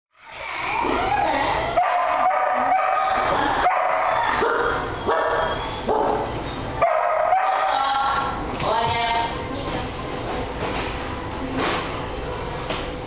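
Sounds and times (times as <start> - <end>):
dogs whining and yipping: 0.2 - 7.5.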